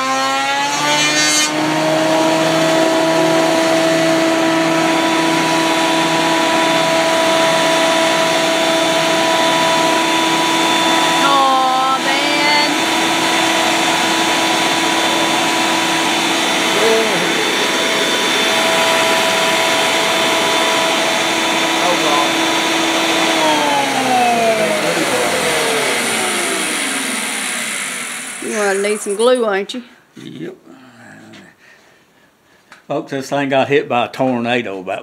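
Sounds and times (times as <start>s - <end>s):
planer motor whining: 0.0s - 29.4s.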